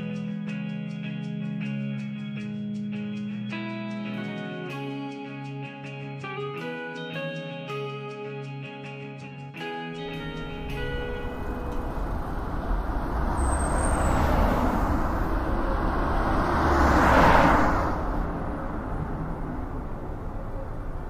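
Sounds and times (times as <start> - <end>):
steady low traffic rumble: 10.0 - 21.0
vehicle passing: 10.0 - 21.0.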